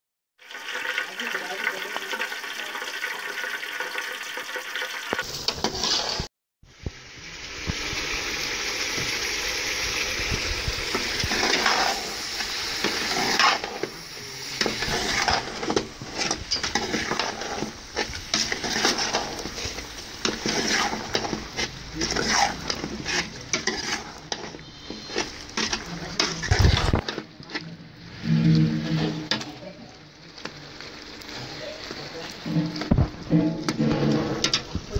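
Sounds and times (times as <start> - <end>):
food sizzling in a metal pot: 0.4 - 34.9
metal spoon scraping a pot: 5.4 - 6.3, 11.2 - 12.2, 12.8 - 13.9, 14.6 - 29.6.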